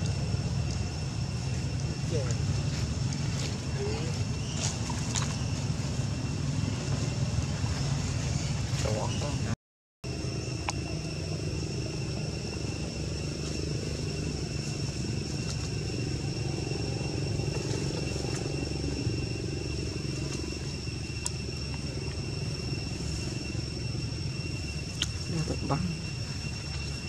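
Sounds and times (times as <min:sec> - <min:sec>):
high-pitched whine: 0:00.0 - 0:27.0
low rumble: 0:00.0 - 0:27.0.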